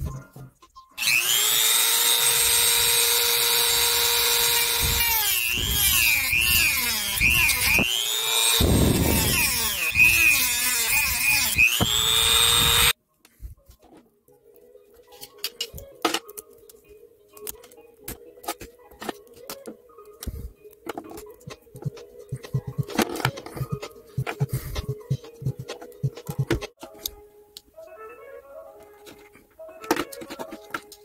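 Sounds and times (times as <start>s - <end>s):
rotary tool grinding plastic: 1.0s - 13.0s
rotary tool whining: 1.0s - 13.0s.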